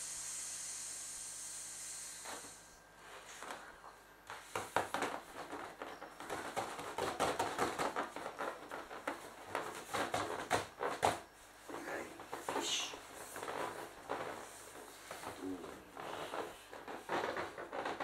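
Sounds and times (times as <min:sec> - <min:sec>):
inflatable vinyl toy creaking: 0:04.5 - 0:18.0.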